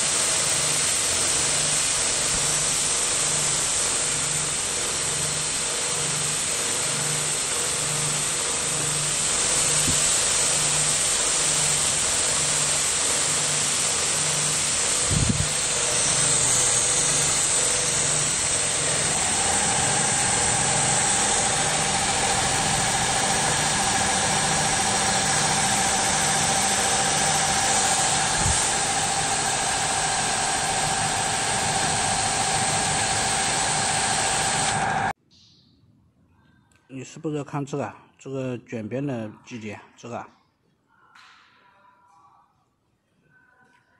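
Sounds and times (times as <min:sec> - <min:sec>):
sewing machine running: 0:00.0 - 0:35.1
steady whine: 0:00.0 - 0:35.2.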